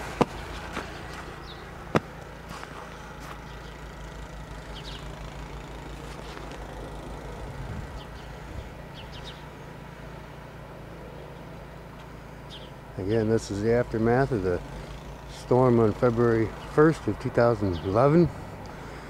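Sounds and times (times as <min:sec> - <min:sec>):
distant vehicle traffic rumble: 0:00.0 - 0:19.0
bird chirps: 0:00.9 - 0:01.8, 0:04.7 - 0:05.2, 0:08.0 - 0:09.6, 0:12.5 - 0:12.8.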